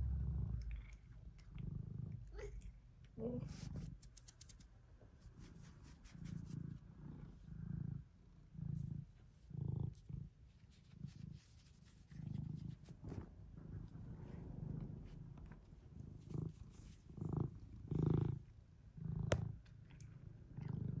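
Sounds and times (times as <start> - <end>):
cat purring: 0.0 - 21.0.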